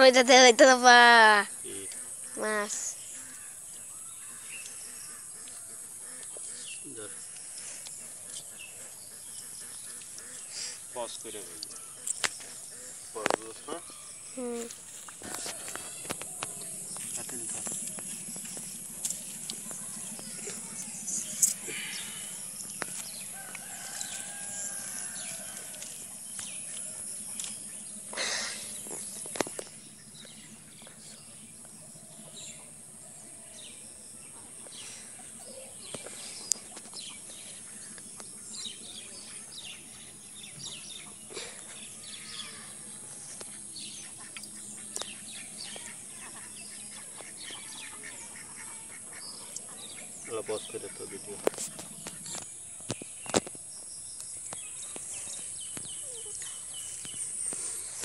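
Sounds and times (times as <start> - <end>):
high insect buzz: 9.7 - 30.3
bird chirps and calls: 15.3 - 25.4.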